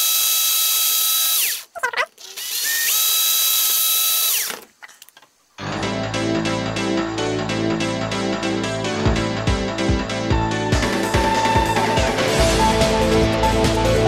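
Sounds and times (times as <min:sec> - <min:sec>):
electric drill whining: 0:00.0 - 0:04.7
background music: 0:05.6 - 0:14.0.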